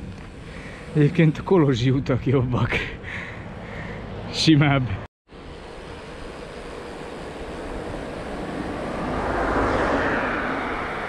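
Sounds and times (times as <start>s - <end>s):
car passing by: 6.8s - 11.0s.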